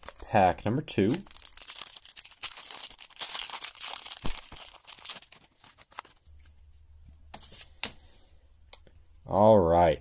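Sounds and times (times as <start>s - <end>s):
foil wrapper tearing and crinkling: 1.1s - 6.2s.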